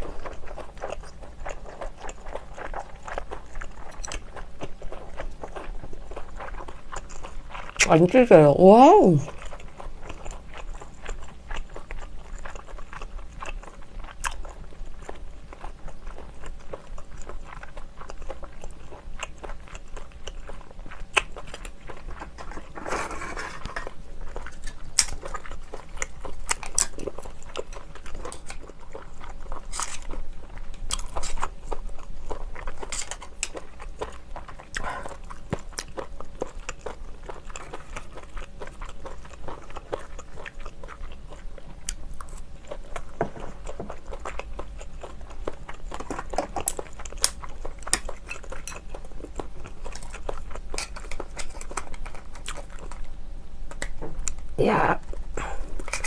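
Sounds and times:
chewing shellfish: 0:00.0 - 0:56.0
rustling scrape: 0:22.1 - 0:24.7.

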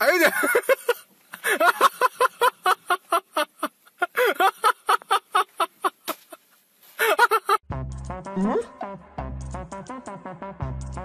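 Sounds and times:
high-pitched voice: 0:08.4 - 0:08.8.

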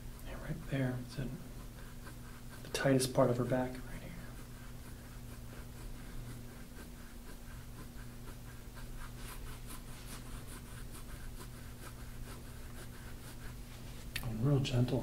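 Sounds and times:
tool scraping skin: 0:01.3 - 0:13.9.

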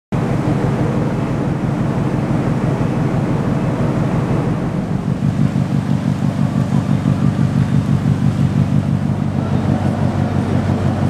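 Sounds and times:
ship machinery droning: 0:00.2 - 0:11.0.

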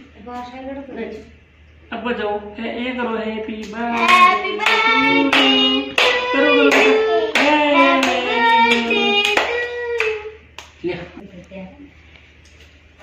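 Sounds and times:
person singing: 0:04.0 - 0:10.4
hands clapping in a beat: 0:04.0 - 0:10.8.

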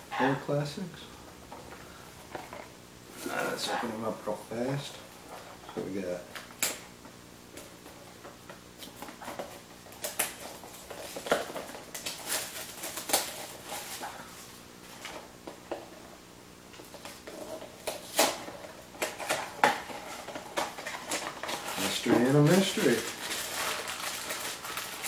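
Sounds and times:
boxes and foil bags torn open: 0:08.8 - 0:14.5, 0:17.8 - 0:25.0.

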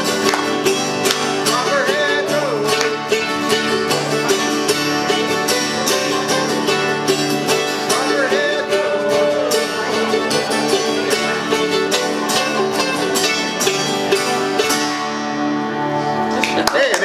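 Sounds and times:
mandolin and guitar strumming: 0:00.0 - 0:17.0
person singing: 0:01.2 - 0:04.4, 0:07.5 - 0:12.2.

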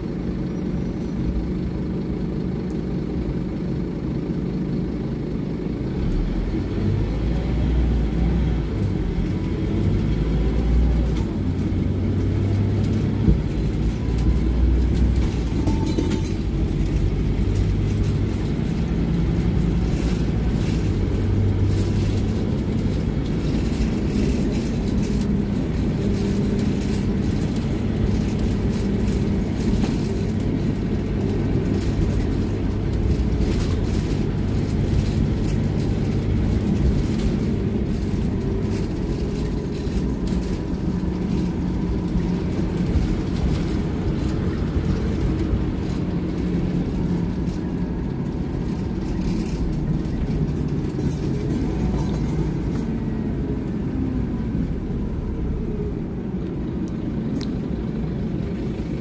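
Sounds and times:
bus engine and road drone: 0:00.0 - 0:59.0
interior rattles and clicks: 0:00.3 - 0:59.0.

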